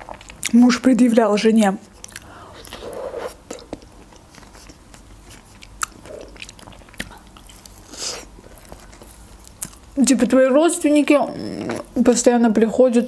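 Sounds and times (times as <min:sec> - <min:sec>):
biting and chewing pastry: 0:03.5 - 0:10.3.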